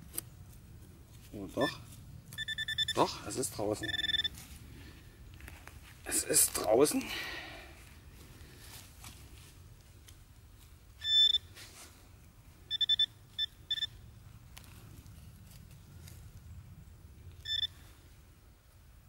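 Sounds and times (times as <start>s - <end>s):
metal detector pinpointer beeps: 1.6s - 3.2s, 3.8s - 4.4s, 11.0s - 11.5s, 12.7s - 14.0s, 17.4s - 17.8s.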